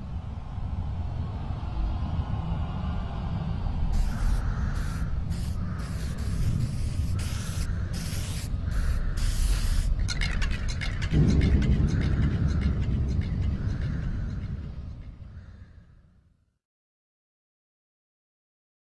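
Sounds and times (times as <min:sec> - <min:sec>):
low rumble: 0:00.0 - 0:16.0
short bursts of hissing: 0:03.9 - 0:10.0.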